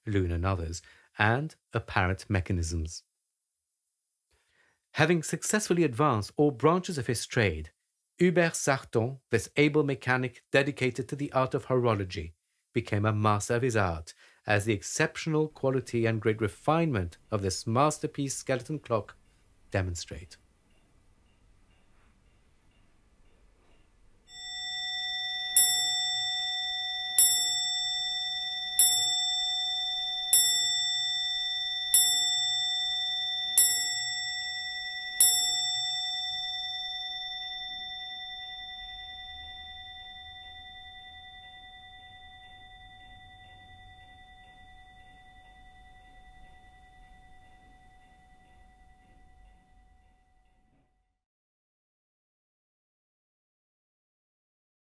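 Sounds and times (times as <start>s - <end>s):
clock bell struck by hammer: 24.3s - 49.7s.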